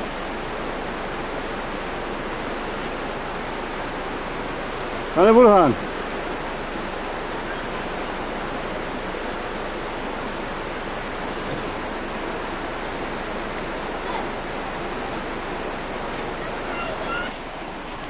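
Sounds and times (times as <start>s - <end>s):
steady rushing hiss: 0.0s - 18.0s
faint voices: 13.9s - 14.6s, 16.2s - 18.0s.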